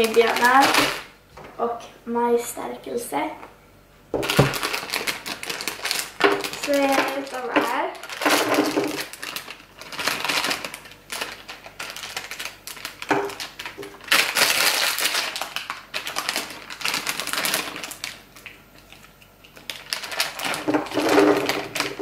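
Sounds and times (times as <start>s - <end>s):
plastic bags crinkling: 0.0s - 1.1s, 4.2s - 22.0s
gummy sweets dropping on table: 4.2s - 4.9s.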